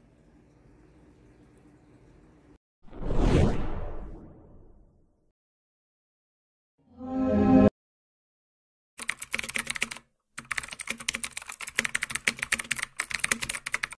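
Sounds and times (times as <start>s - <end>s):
typing on computer keyboard: 9.0s - 14.0s.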